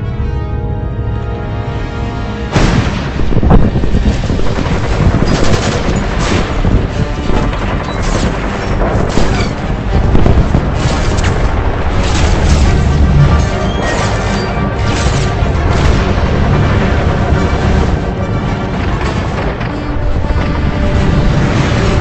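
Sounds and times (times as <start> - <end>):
explosions: 2.5 - 22.0
rapid gunfire: 4.0 - 13.0.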